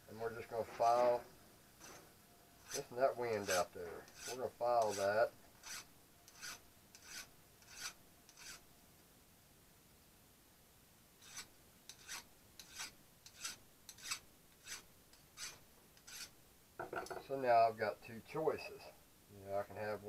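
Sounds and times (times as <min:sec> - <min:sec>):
hand file rasping on steel: 0:02.6 - 0:08.6, 0:11.2 - 0:16.4.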